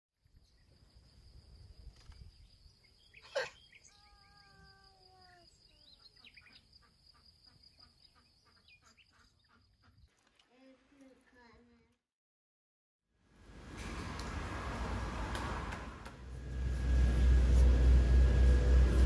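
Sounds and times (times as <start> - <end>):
birds chirping: 2.2 - 10.2.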